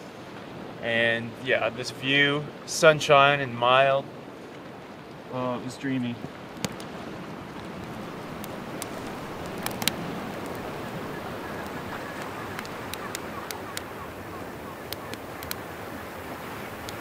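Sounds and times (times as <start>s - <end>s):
water washing against shore: 0.0s - 17.0s
sharp clicks: 7.8s - 10.7s, 11.6s - 14.0s, 14.8s - 15.6s.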